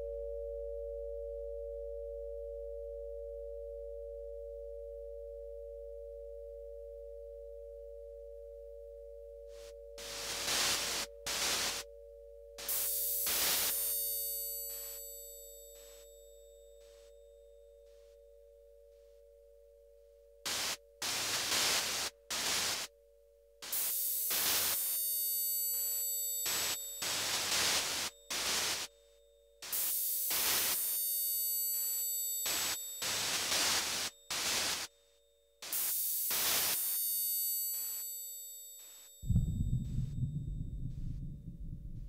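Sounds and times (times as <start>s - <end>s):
static blasts with whistling tones: 10.0s - 11.8s, 12.6s - 14.0s, 20.5s - 22.9s, 23.6s - 25.0s, 26.4s - 28.9s, 29.6s - 31.0s, 32.4s - 34.9s, 35.6s - 37.0s
low throbbing pulse: 39.2s - 42.0s.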